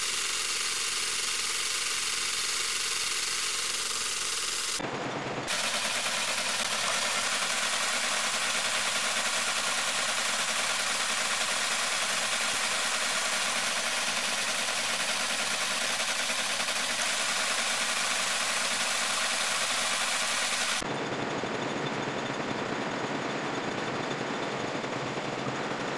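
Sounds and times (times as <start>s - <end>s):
lathe cutting plastic: 0.0s - 4.8s, 5.5s - 20.8s.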